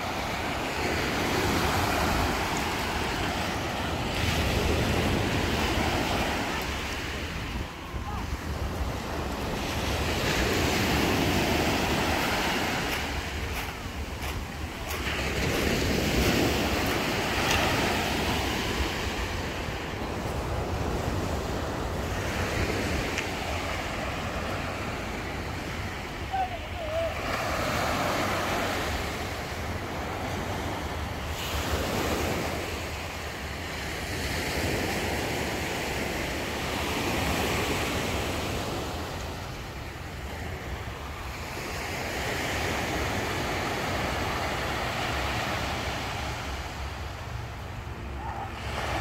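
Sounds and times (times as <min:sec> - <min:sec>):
waves washing on pebble beach: 0:00.0 - 0:33.1.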